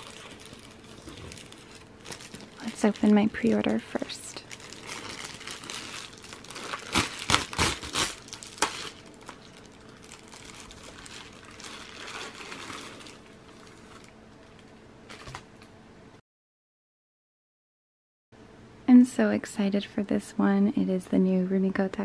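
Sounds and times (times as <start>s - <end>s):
plastic mailer ripping: 0.0s - 14.2s
plastic crinkling: 0.0s - 15.6s.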